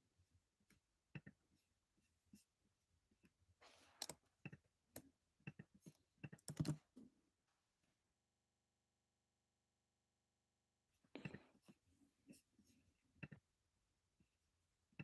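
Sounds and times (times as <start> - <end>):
keyboard and mouse clicks: 3.8 - 6.8.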